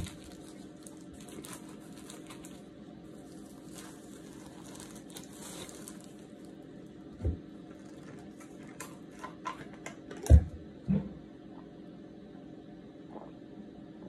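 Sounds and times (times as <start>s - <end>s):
plastic gloves and bag crinkling: 0.0s - 9.5s.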